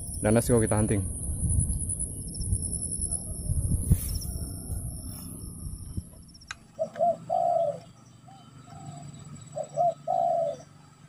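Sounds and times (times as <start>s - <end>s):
dove cooing: 6.7s - 10.8s.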